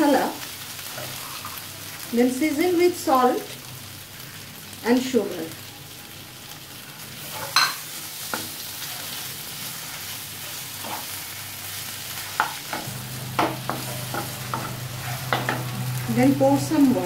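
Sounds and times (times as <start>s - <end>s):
food sizzling in a frying pan: 0.0s - 17.0s
spatula scraping a pan: 0.9s - 1.6s, 13.3s - 16.1s.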